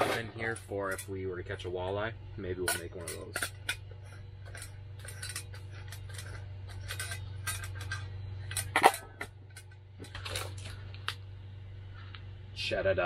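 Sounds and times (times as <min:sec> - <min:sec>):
low hum: 0:00.0 - 0:13.0
metal clicks and scrapes: 0:02.6 - 0:11.1.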